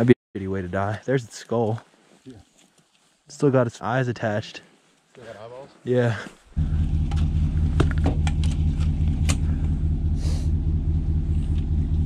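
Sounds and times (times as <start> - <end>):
pickup truck engine idling: 6.6 - 12.0
gear clicking and knocking: 6.9 - 9.8.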